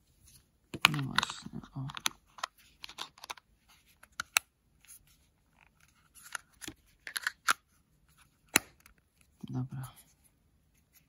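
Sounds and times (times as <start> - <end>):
plastic palette clicks and rustles: 0.7 - 4.5, 5.4 - 7.7, 8.4 - 9.3.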